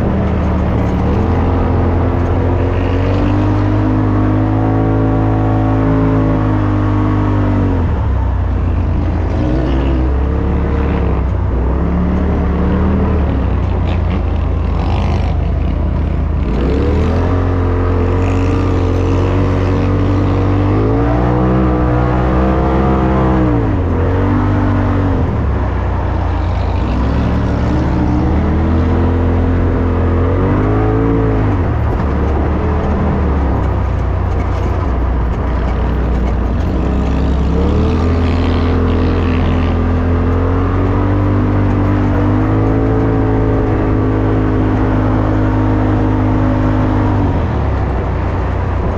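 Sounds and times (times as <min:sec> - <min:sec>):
engine revving from inside cab: 0:00.0 - 0:48.9.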